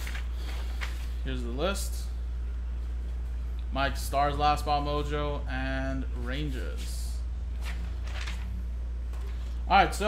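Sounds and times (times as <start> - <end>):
paper rustling: 0.0 - 1.2, 7.6 - 9.6
steady low hum: 0.0 - 10.0.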